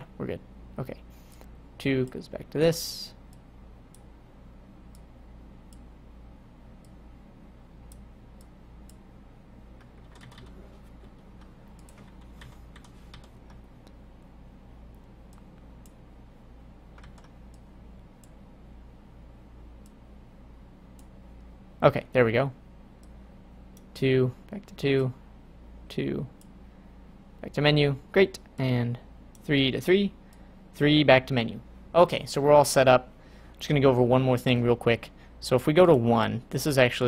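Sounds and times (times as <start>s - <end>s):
steady low hum: 0.0s - 37.0s
computer mouse and keyboard clicks: 9.8s - 14.0s, 16.9s - 18.4s.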